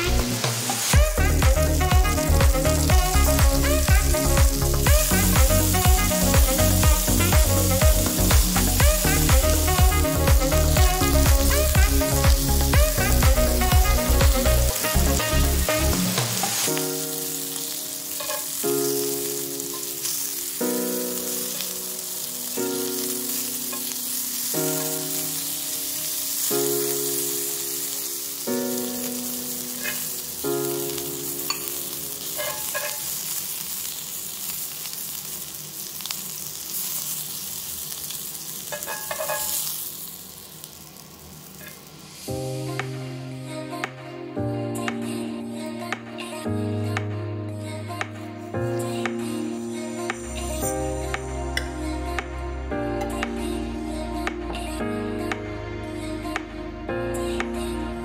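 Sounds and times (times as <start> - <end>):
background music: 0.0 - 33.1, 42.2 - 58.0
vegetables sizzling in oil: 0.0 - 42.8.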